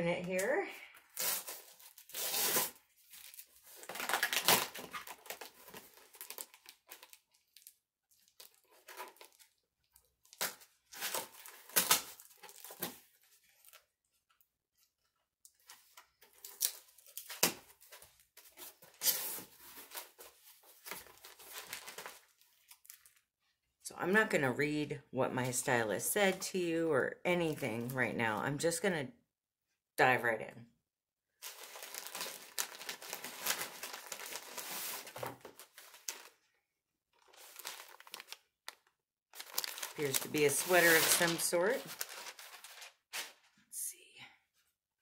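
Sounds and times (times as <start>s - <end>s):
cardboard box tearing: 1.2s - 5.4s.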